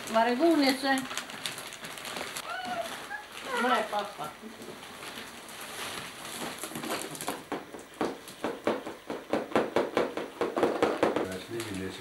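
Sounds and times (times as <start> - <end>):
sharp knocks: 7.3 - 11.4.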